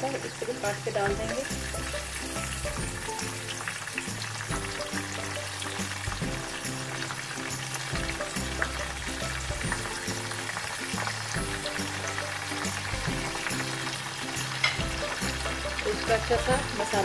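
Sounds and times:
masala sizzling in oil: 0:00.0 - 0:17.0
background music with bass: 0:00.9 - 0:17.0.

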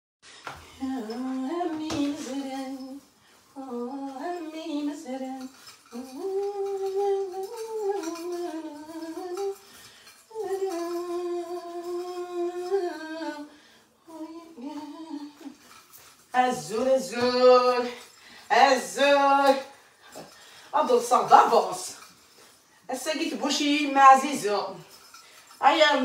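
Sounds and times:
woman humming a slow tune: 0:10.3 - 0:15.6.

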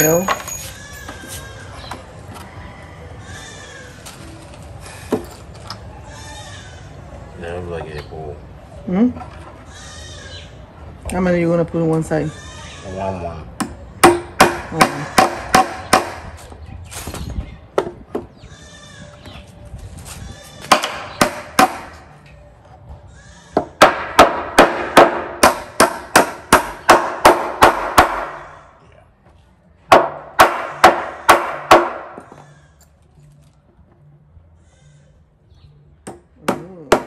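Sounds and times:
hammer striking nails into wood: 0:13.6 - 0:16.3, 0:23.8 - 0:28.4, 0:29.9 - 0:32.3.

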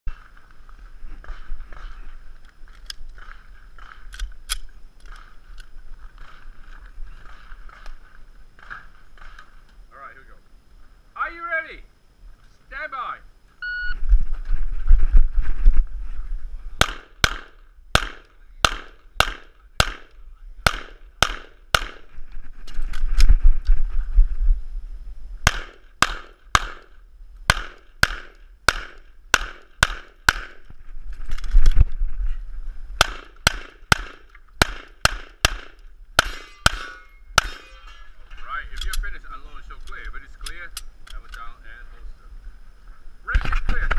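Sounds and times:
pistol firing rapid shots: 0:16.8 - 0:22.1, 0:25.5 - 0:26.9, 0:27.5 - 0:30.6, 0:33.0 - 0:37.6.

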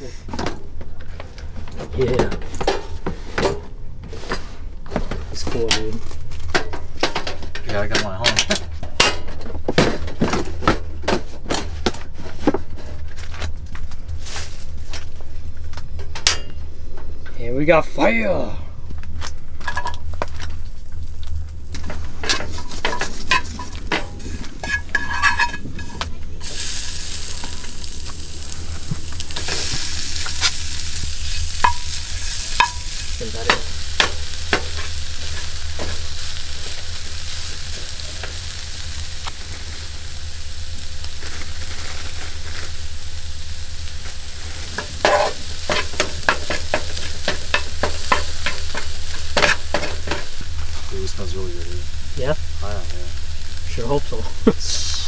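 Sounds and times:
fish sizzling in oil: 0:19.7 - 0:55.0
knife scraping in pan: 0:22.2 - 0:27.7, 0:44.8 - 0:50.3.

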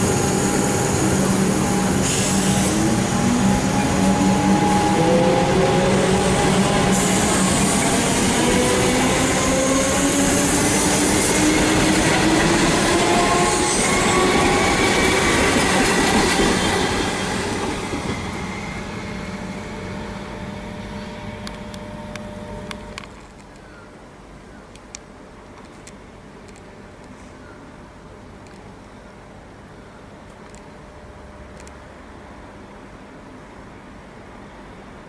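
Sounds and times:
electric train motors whining: 0:00.0 - 0:23.2.

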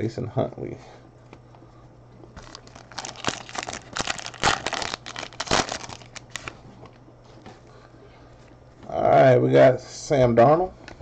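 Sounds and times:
wrapper crinkling and tearing: 0:02.4 - 0:06.5.

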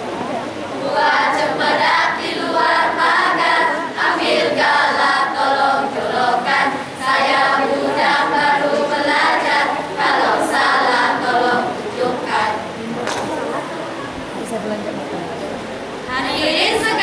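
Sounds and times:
children chanting in unison: 0:00.8 - 0:12.7, 0:16.1 - 0:17.0.

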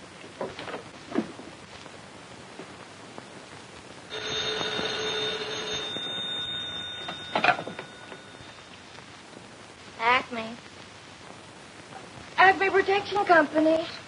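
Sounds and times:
telephone bell ringing: 0:04.1 - 0:08.8
handset clattering off cradle: 0:07.0 - 0:08.2.

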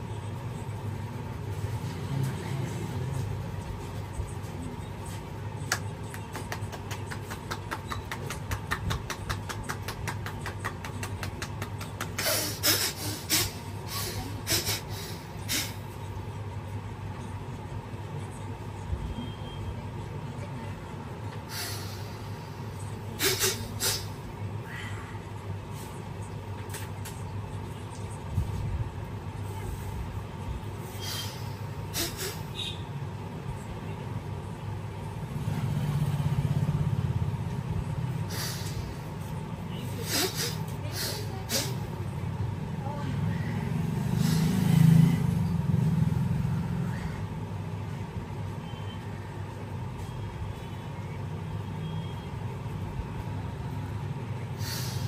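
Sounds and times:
low background hum: 0:00.0 - 0:55.0
vehicle engine rumbling past: 0:00.6 - 0:04.1, 0:35.0 - 0:39.6, 0:42.1 - 0:48.0.

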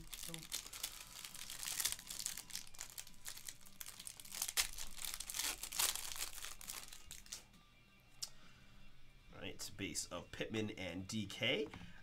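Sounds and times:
plastic wrapper crinkling: 0:00.0 - 0:07.4.

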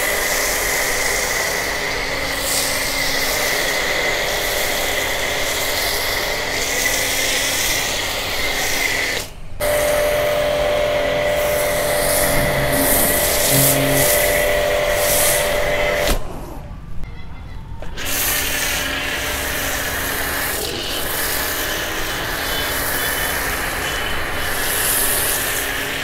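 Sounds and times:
hissing foam spray: 0:00.0 - 0:16.2, 0:18.0 - 0:26.0
pressure washer hum: 0:09.6 - 0:16.1.

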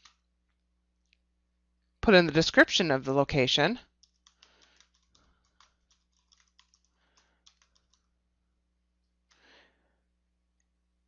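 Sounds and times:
keyboard typing: 0:00.0 - 0:00.2, 0:03.9 - 0:08.2.

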